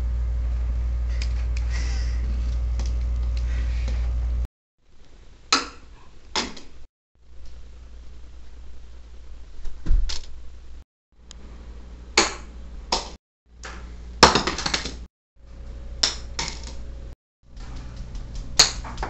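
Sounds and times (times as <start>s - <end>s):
low hum: 0.0s - 5.3s, 15.4s - 19.0s.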